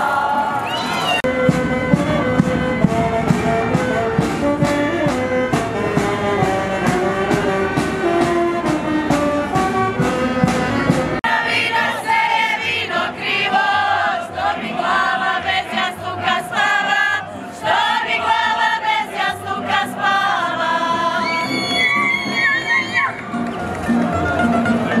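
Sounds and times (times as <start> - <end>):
voices singing: 0.0 - 22.9
saxophone and drum band: 0.5 - 12.7.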